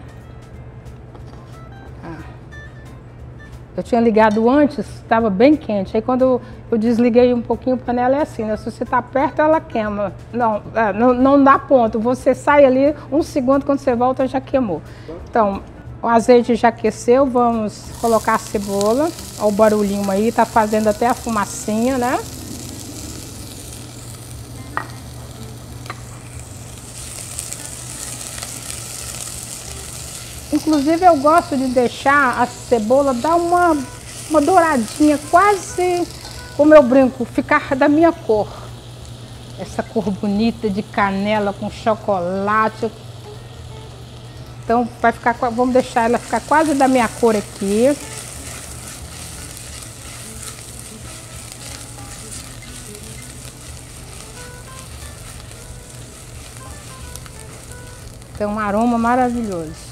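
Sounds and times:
onion sizzling in oil: 17.6 - 59.9.

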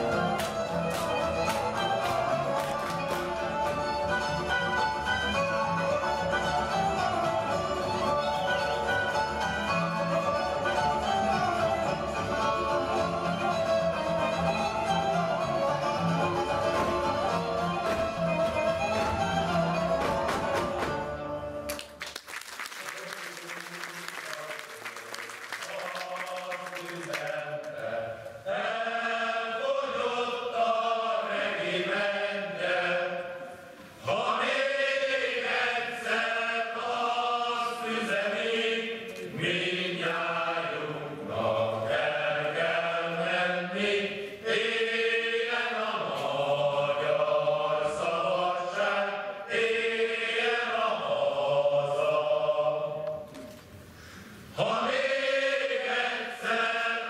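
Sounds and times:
group singing unaccompanied: 0.0 - 21.0, 25.8 - 53.4, 54.5 - 57.0
applause: 0.4 - 3.3, 21.7 - 27.8.

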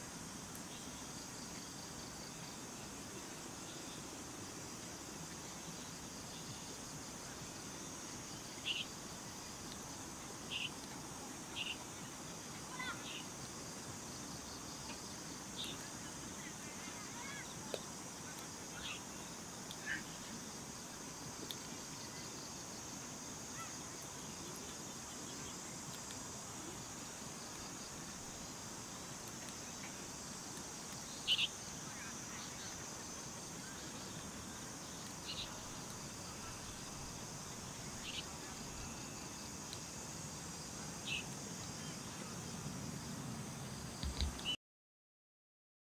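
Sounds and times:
insect chorus: 0.0 - 44.6
steady soft rush of noise: 0.0 - 44.6
wood fire crackling: 25.3 - 31.2.

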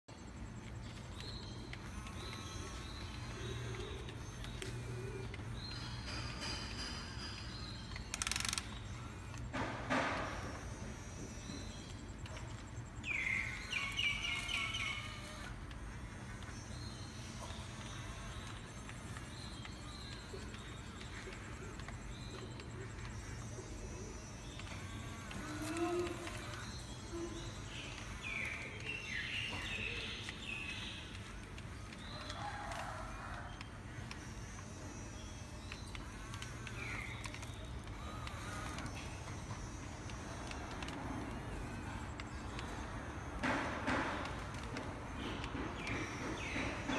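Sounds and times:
electric gear motors buzzing: 0.1 - 46.9
steady low hum: 0.1 - 46.9.

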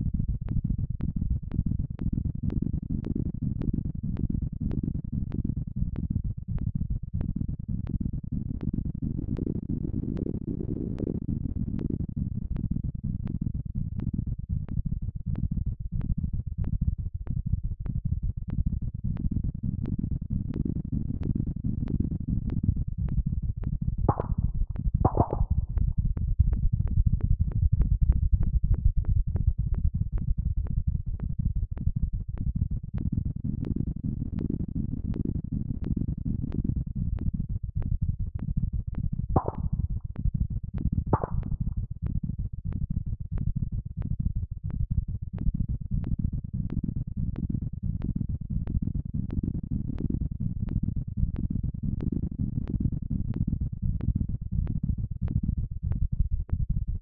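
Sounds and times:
dense low synthesized rumble: 21.5 - 34.0, 35.4 - 51.9
fast pulse of clicks: 24.1 - 25.8, 39.4 - 40.0, 41.2 - 41.7.

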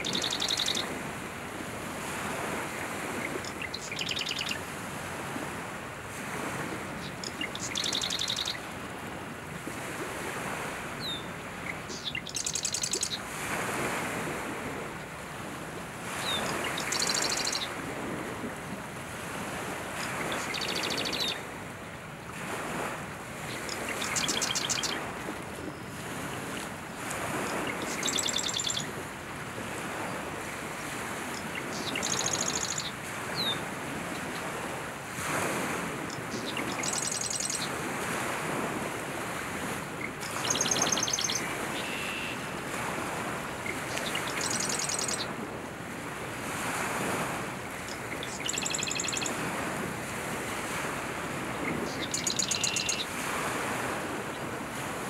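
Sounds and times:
wren singing: 0.0 - 0.8, 3.4 - 4.6, 7.0 - 8.6, 11.0 - 13.2, 16.8 - 17.7, 20.4 - 21.4, 23.5 - 25.0, 27.7 - 28.9, 31.4 - 32.9, 36.1 - 37.7, 40.3 - 42.2, 44.0 - 45.3, 47.9 - 49.3, 51.9 - 53.0.

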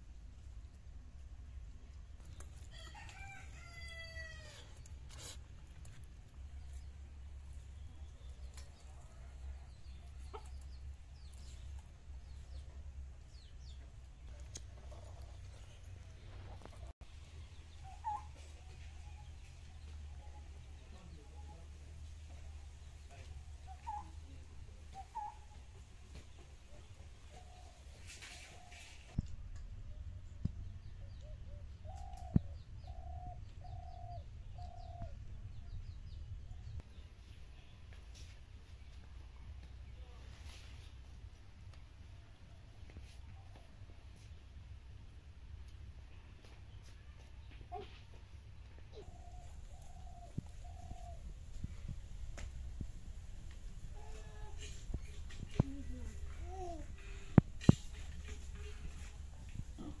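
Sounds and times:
small birds chirping: 4.6 - 41.0, 45.6 - 60.0
chickens clucking: 8.2 - 21.5, 22.2 - 29.3
dove cooing: 48.9 - 51.3.

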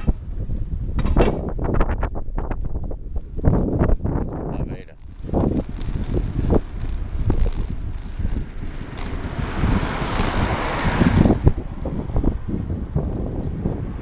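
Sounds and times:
wind buffeting microphone: 0.0 - 14.0
car passing: 5.0 - 14.0.

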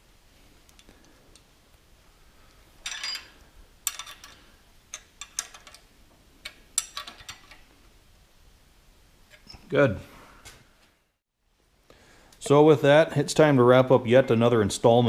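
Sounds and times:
wrench rattling: 2.8 - 7.6.

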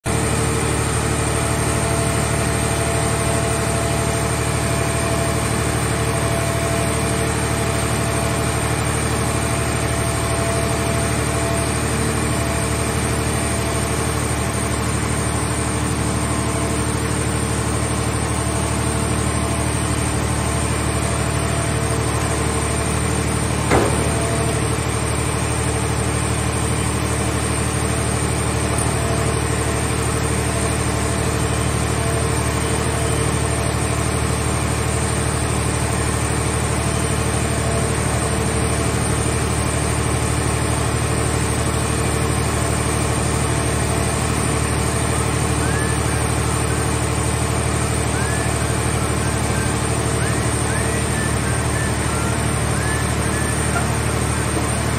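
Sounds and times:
hydraulic machine running: 0.1 - 54.9
sharp metal knock: 23.7 - 24.8.

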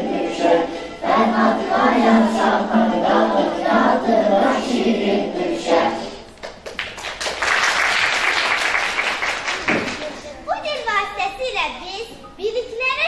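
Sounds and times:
children's choir singing: 0.0 - 6.3
audience applause: 6.6 - 10.2.

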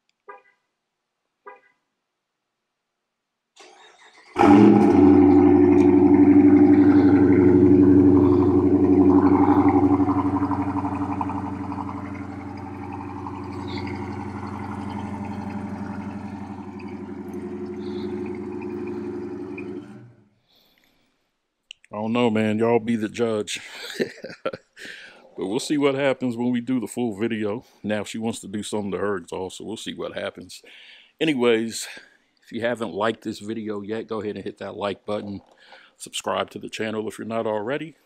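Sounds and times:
car engine cranking: 3.6 - 20.1
car engine starting and idling: 3.6 - 20.2.

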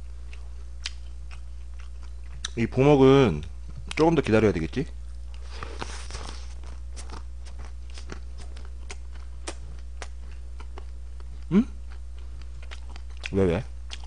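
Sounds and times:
low electrical hum: 0.0 - 14.0
wet chewing mouth clicks: 7.0 - 14.0.

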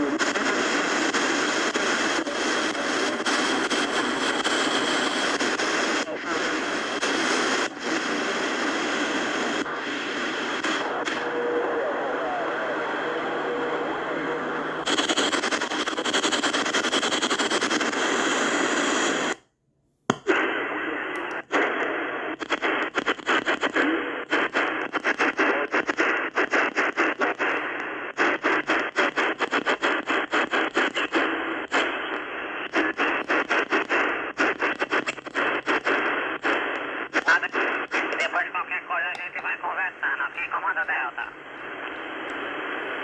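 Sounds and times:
radio static hiss: 0.0 - 19.4, 20.3 - 43.0
tuning knob clicks: 21.1 - 21.4.

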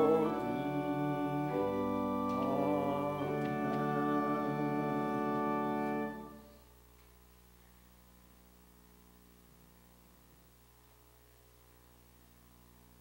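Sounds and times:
organ playing held chords: 0.0 - 6.6.

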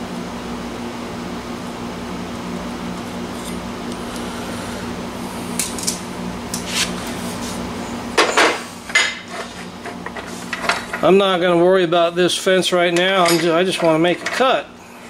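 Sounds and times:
metal tubing clanking on metal: 12.9 - 14.6.

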